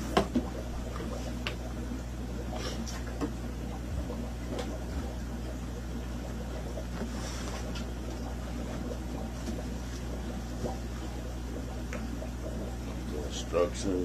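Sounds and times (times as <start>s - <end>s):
low room hum and hiss: 0.0s - 14.0s.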